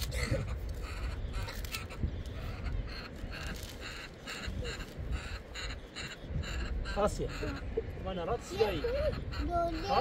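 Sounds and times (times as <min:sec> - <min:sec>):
crow cawing: 0:00.1 - 0:07.8.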